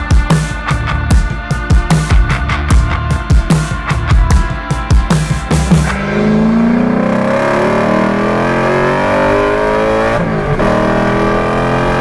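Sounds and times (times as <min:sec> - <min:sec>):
truck engine accelerating: 0:05.5 - 0:12.0.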